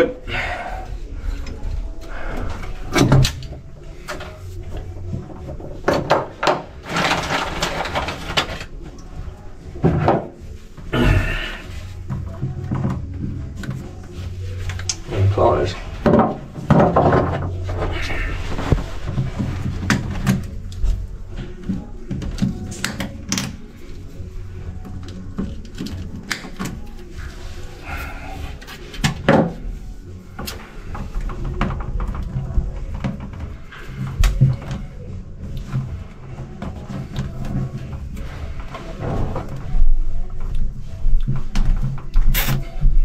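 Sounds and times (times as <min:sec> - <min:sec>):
hands handling electrical cables: 0:16.0 - 0:39.7.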